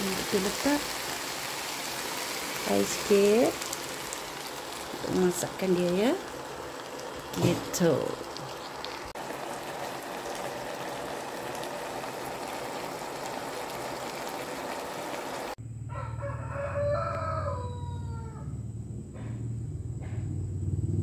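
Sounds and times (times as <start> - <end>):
flowers sizzling in a wok: 0.0 - 15.6
rooster crowing: 15.7 - 18.7.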